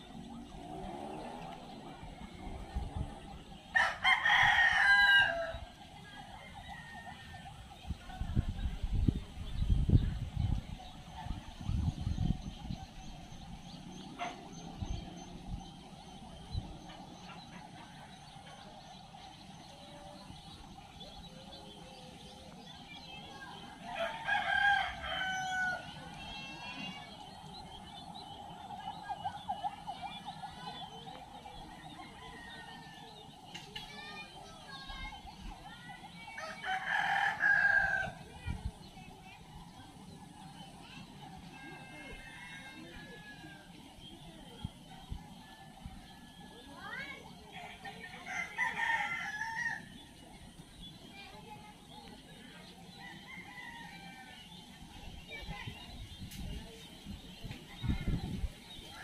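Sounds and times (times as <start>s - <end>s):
rooster crowing: 3.7s - 5.6s, 24.0s - 26.0s.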